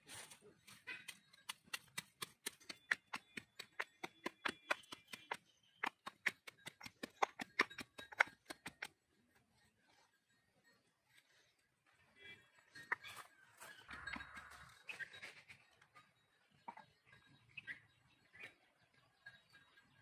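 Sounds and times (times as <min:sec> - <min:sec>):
pestle pounding in stone mortar: 0:01.1 - 0:08.9.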